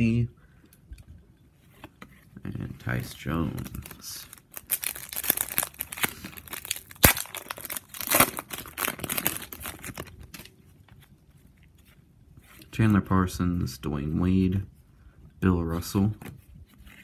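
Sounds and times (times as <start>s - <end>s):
foil wrapper crinkling: 3.5s - 10.5s
sharp crack of foil: 4.5s - 10.1s.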